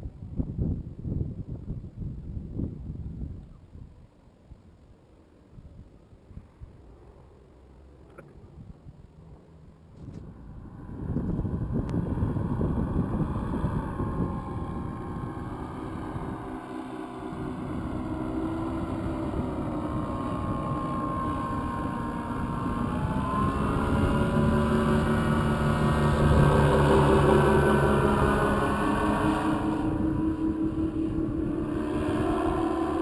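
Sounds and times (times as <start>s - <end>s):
wind rumbling on microphone: 0.0s - 7.4s, 8.2s - 33.0s
paramotor engine droning: 9.1s - 33.0s.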